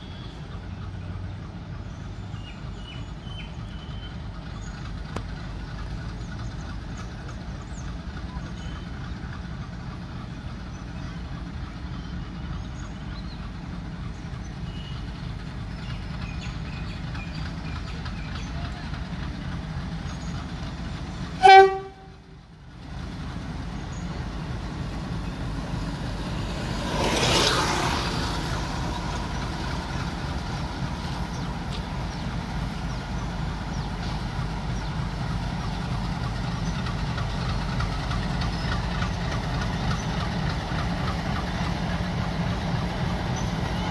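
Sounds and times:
locomotive engine rumbling: 0:00.0 - 0:43.9
locomotive horn blast: 0:21.4 - 0:22.3.

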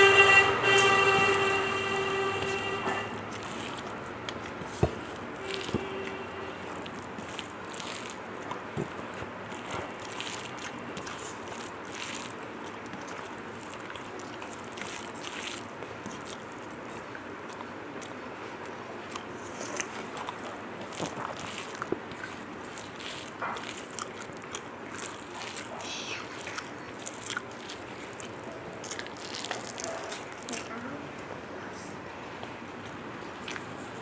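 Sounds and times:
long horn tone: 0:00.0 - 0:03.9, 0:05.1 - 0:06.9
fingers working rice on a plate: 0:00.0 - 0:18.2
chewing: 0:03.2 - 0:31.3, 0:32.4 - 0:34.0.

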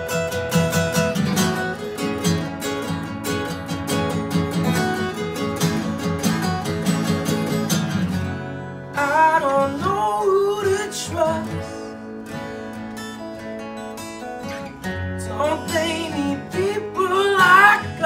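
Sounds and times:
acoustic guitars strumming: 0:00.0 - 0:18.0
man singing: 0:08.9 - 0:12.0, 0:15.2 - 0:18.0.

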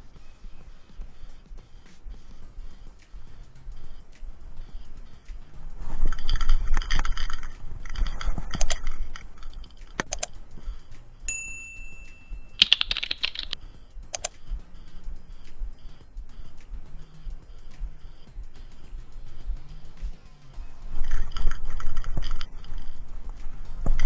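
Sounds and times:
background music: 0:00.0 - 0:24.0
keyboard typing: 0:01.0 - 0:20.2, 0:20.9 - 0:24.0
mouse clicks: 0:02.3 - 0:11.0, 0:12.5 - 0:19.8
notification chime: 0:11.3 - 0:12.7.

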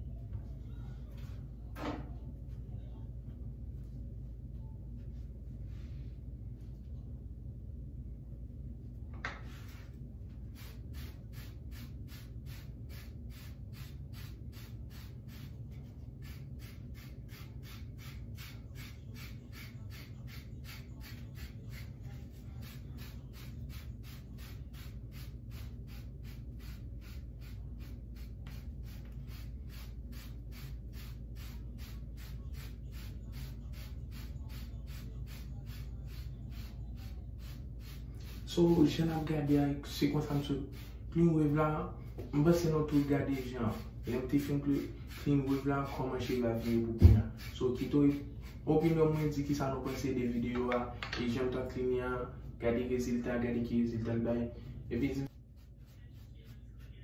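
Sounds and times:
brush strokes on hair: 0:09.4 - 0:11.9.

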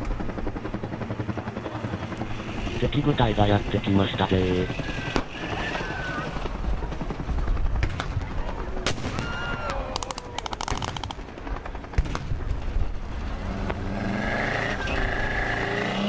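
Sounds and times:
vehicle engine running: 0:11.3 - 0:16.0.

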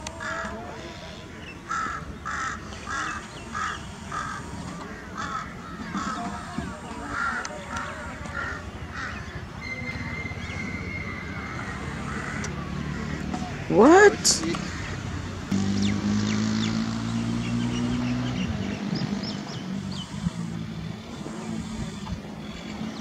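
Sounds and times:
crows cawing: 0:00.2 - 0:09.4, 0:11.5 - 0:13.7.

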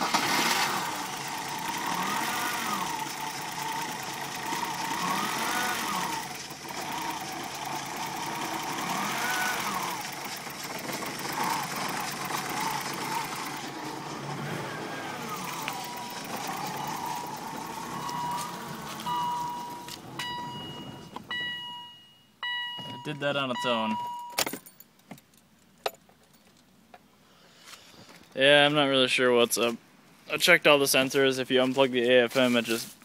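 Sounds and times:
car engine idling roughly: 0:00.0 - 0:21.1.

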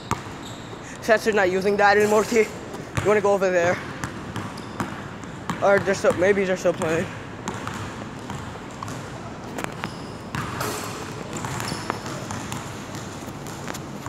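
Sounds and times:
basketball bouncing on hardwood floor: 0:03.8 - 0:09.1, 0:09.8 - 0:13.7.

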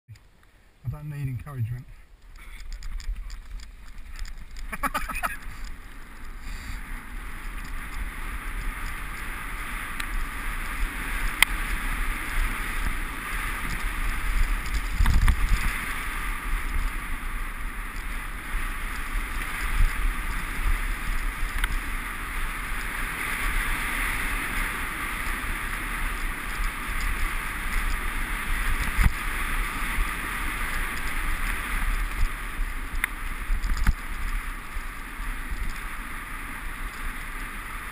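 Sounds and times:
bike rattling over dirt trail: 0:02.1 - 0:37.9
wind rushing over microphone: 0:02.4 - 0:37.9.

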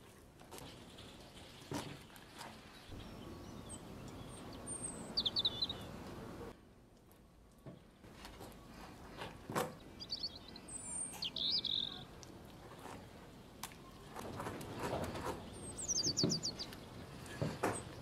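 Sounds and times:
bird chirping: 0:02.8 - 0:06.5, 0:09.7 - 0:12.1, 0:15.4 - 0:18.0.

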